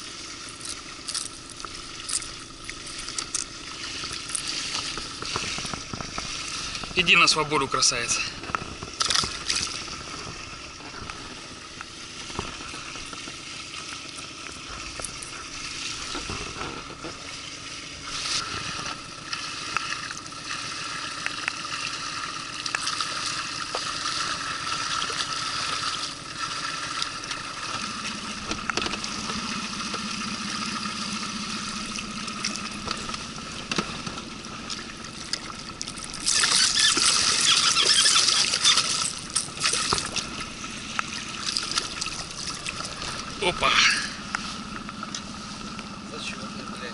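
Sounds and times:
rush of splashing water: 0:00.0 - 0:46.9
water lapping against boat: 0:00.0 - 0:46.9
fish splashing into water: 0:08.6 - 0:46.0
rain ticking: 0:27.0 - 0:36.9.

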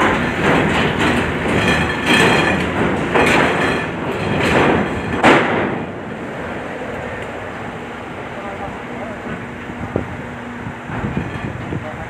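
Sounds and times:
metal ramp clanking and banging: 0:00.0 - 0:06.1, 0:10.9 - 0:11.8
truck engines rumbling: 0:00.0 - 0:12.0.

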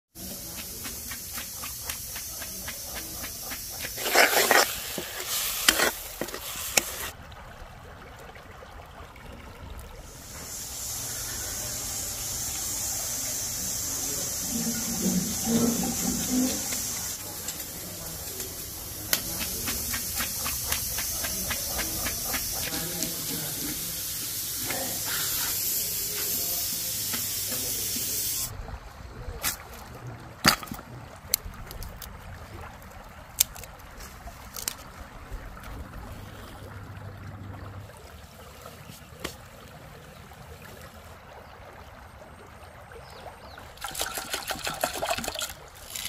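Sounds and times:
cleaver scraping fish scales: 0:00.2 - 0:07.1, 0:14.5 - 0:23.6, 0:45.4 - 0:46.0
curry sizzling: 0:00.2 - 0:07.2, 0:10.1 - 0:28.5.

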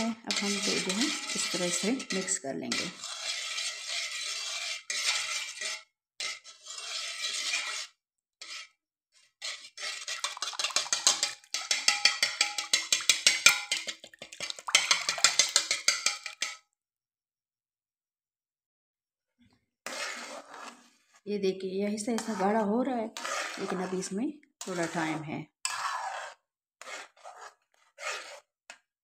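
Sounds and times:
whisk clicking against metal pot: 0:00.0 - 0:05.7, 0:09.5 - 0:16.6
whisk scraping swish: 0:00.0 - 0:08.7, 0:09.4 - 0:16.6, 0:19.8 - 0:21.1, 0:22.2 - 0:28.8.

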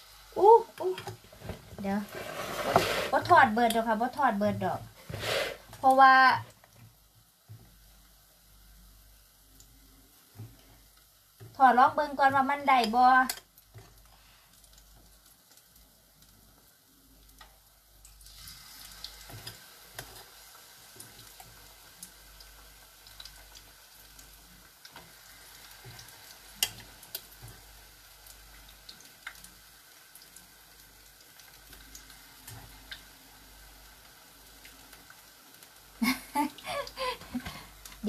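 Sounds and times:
food deep-frying in hot oil: 0:00.0 - 0:38.0.

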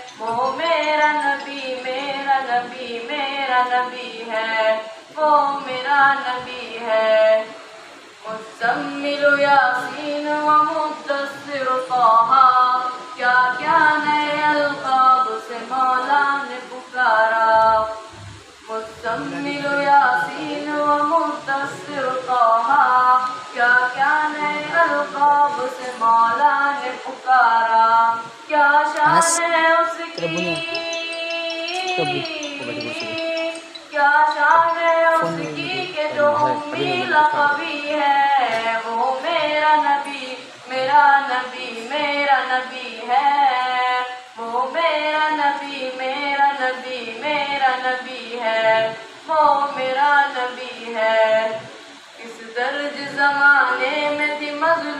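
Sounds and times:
man chanting devotional verse: 0:17.6 - 0:22.0, 0:28.9 - 0:31.0, 0:31.6 - 0:33.6, 0:34.9 - 0:37.9.

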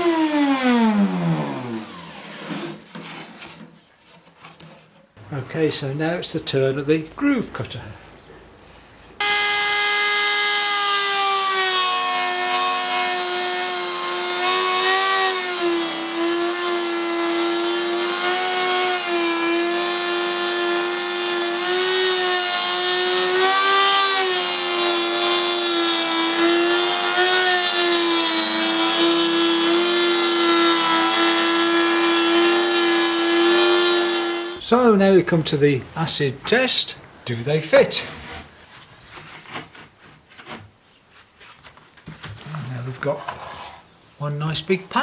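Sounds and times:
router whining cutting wood: 0:00.0 - 0:02.8, 0:09.2 - 0:34.6.

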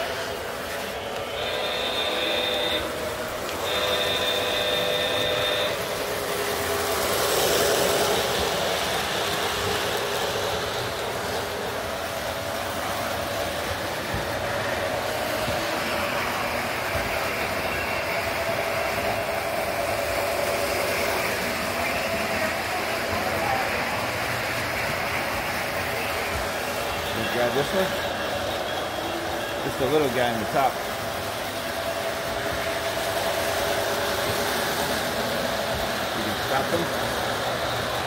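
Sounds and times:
model train wheels clattering: 0:00.0 - 0:25.8
train whistle chord: 0:00.8 - 0:08.6.

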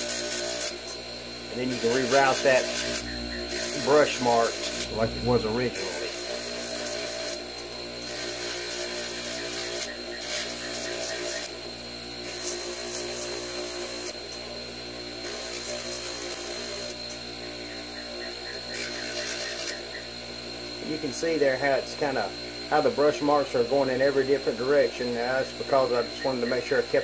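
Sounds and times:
polishing wheel motor running: 0:00.0 - 0:27.0
metal scratching against wheel: 0:01.5 - 0:07.4, 0:08.0 - 0:11.5, 0:18.7 - 0:20.0.

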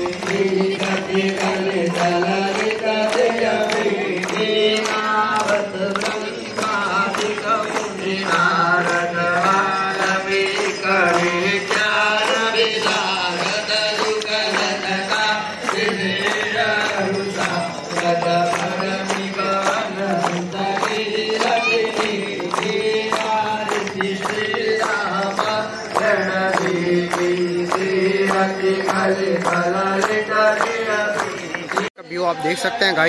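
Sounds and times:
crowd clapping in time: 0:00.0 - 0:33.0
hymn singing: 0:00.0 - 0:33.0.

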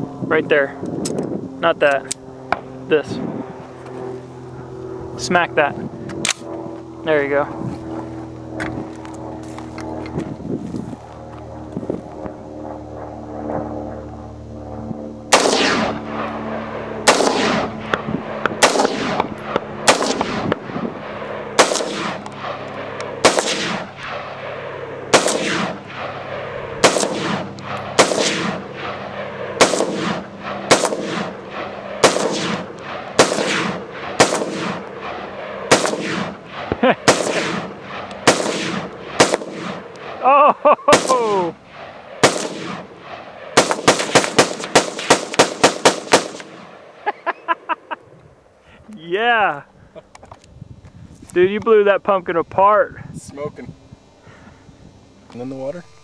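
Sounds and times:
rifle shots with echo: 0:15.3 - 0:40.2, 0:40.9 - 0:47.0.

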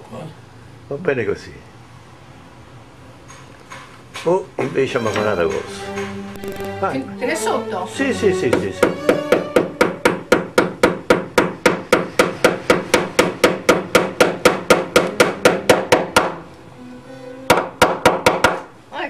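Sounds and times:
hammer driving a nail: 0:05.5 - 0:06.7, 0:08.5 - 0:16.4, 0:17.5 - 0:18.7.

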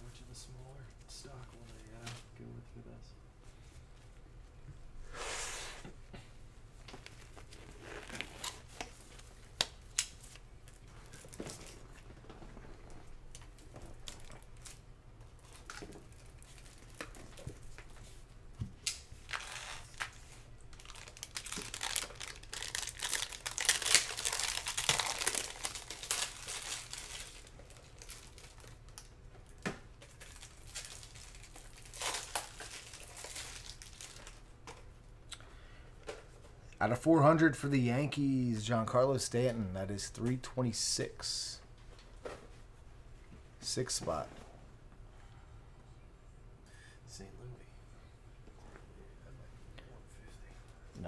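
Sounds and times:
foil pack crinkling and tearing: 0:19.3 - 0:29.1, 0:30.1 - 0:34.4.

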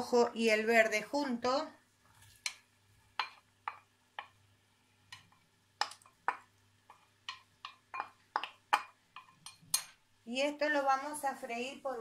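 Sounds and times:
wooden spoon tapping a bowl: 0:03.2 - 0:04.4, 0:05.1 - 0:10.0.

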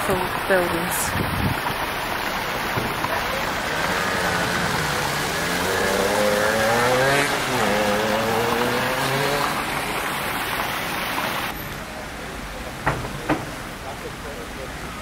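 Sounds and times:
fountain water splashing: 0:00.0 - 0:15.0
outdoor background noise: 0:00.0 - 0:15.0
vehicle engine passing: 0:03.0 - 0:11.5.

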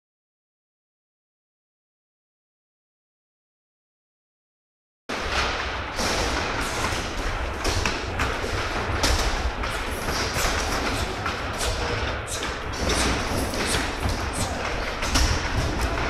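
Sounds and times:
kicks and punches on pads: 0:06.0 - 0:16.0.

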